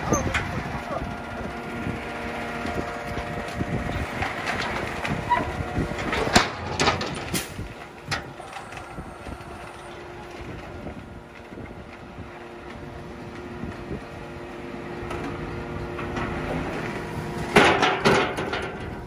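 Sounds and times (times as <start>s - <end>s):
truck engine idling: 0.0s - 19.0s
metal chute clanking: 3.5s - 8.9s, 17.4s - 19.0s.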